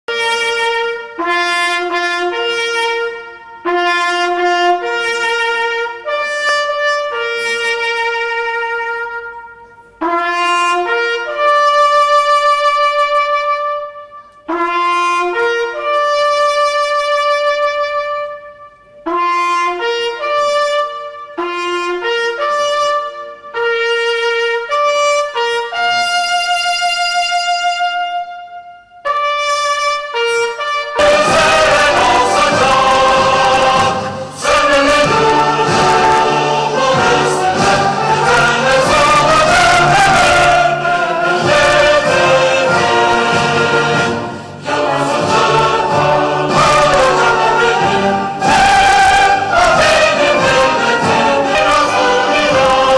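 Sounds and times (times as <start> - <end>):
solo trumpet melody: 0.0 - 52.9.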